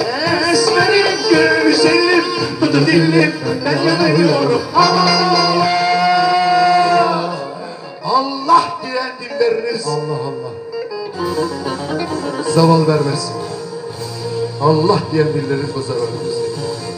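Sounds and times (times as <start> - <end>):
man singing: 0.0 - 10.6.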